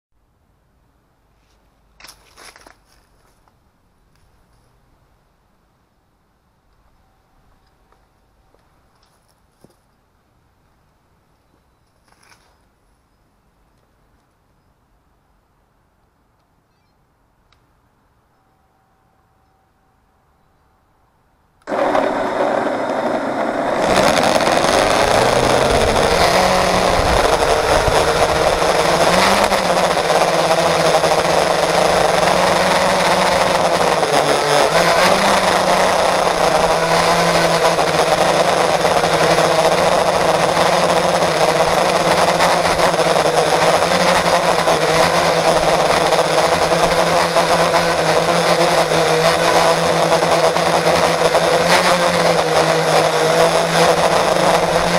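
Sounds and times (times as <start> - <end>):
quadcopter motors whining: 21.6 - 54.9.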